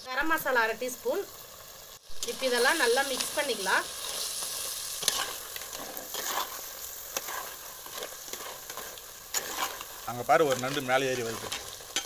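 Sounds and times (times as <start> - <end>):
food sizzling in hot oil: 0.0 - 12.0
metal spoon scraping pot: 5.0 - 9.9.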